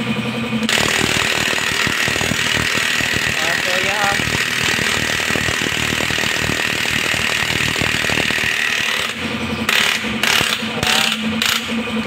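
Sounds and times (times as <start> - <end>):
impact wrench hammering: 0.7 - 11.8.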